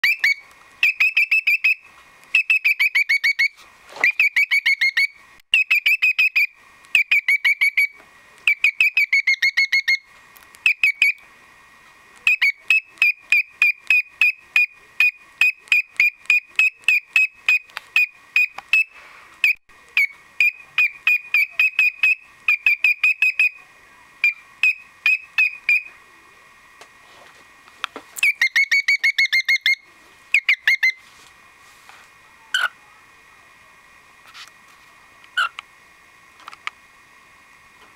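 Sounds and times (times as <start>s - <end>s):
cockatiel calling: 0.0s - 11.2s, 12.2s - 23.6s, 24.2s - 25.9s, 28.2s - 31.0s, 32.4s - 32.9s, 35.4s - 35.6s.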